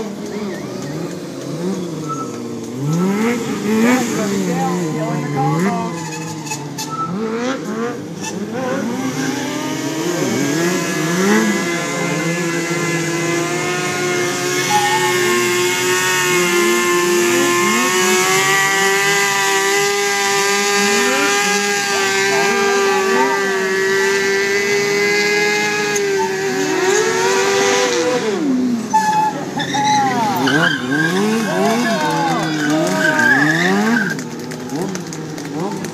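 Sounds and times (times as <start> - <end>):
motorcycle engine revving hard: 0.0 - 35.9
tyre spinning on asphalt: 8.2 - 35.9.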